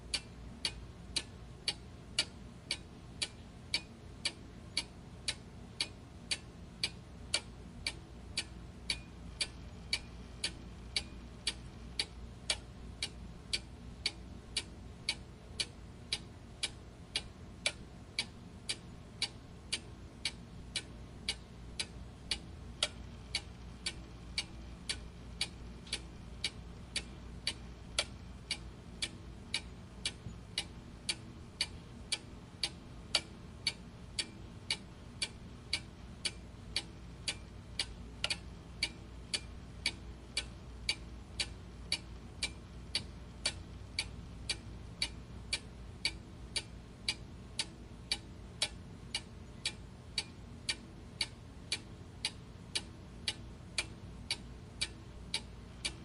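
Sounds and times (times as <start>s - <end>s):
clock ticking: 0.0s - 56.0s
faint low background noise: 0.0s - 56.0s.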